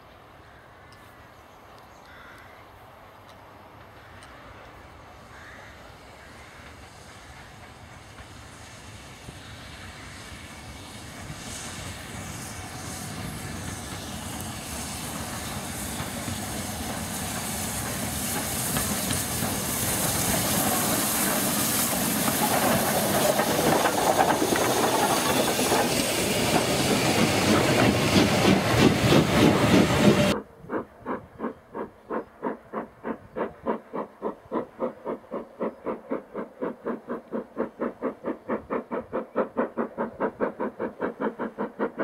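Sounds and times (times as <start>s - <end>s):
steam locomotive passing: 2.6s - 42.0s
train wheels clattering over rail: 11.2s - 42.0s.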